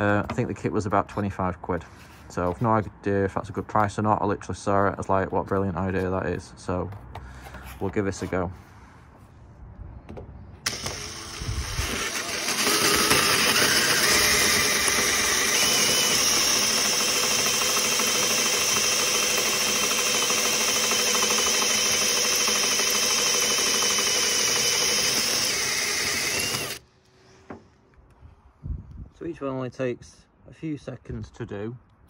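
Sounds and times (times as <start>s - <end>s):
power drill boring through sheet steel: 10.6s - 26.8s.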